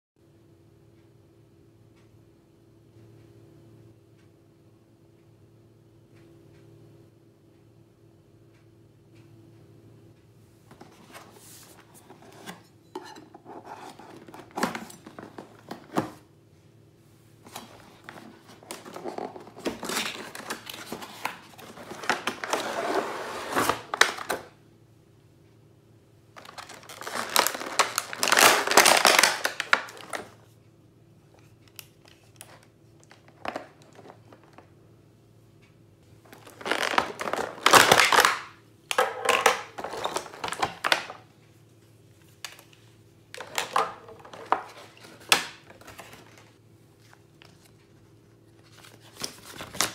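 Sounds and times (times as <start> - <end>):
faint steady hum: 0.2 - 49.9
plastic packaging crinkling: 17.4 - 24.5, 26.4 - 30.4, 36.2 - 41.2, 43.3 - 46.6.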